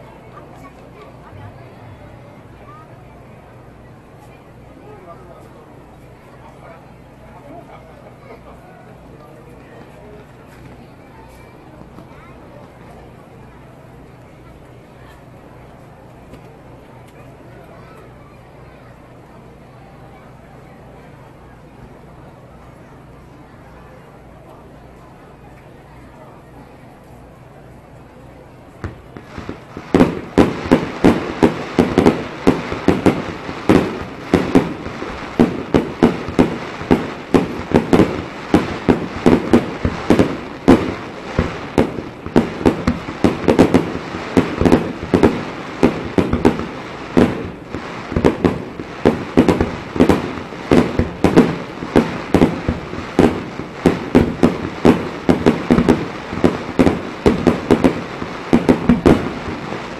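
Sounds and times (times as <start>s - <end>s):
fireworks pops and crackles: 0.1s - 2.8s, 7.3s - 18.2s, 27.0s - 59.9s
fireworks bursting: 28.6s - 59.9s.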